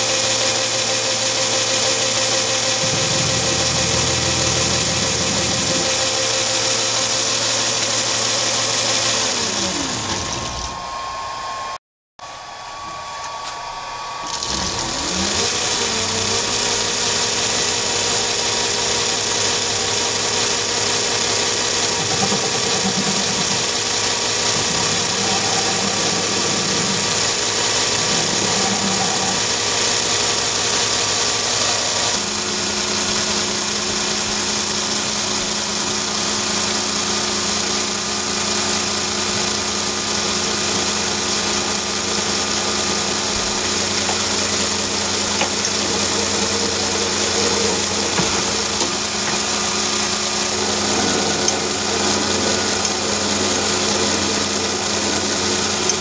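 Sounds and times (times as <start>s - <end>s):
metal lathe whining: 0.0s - 56.0s.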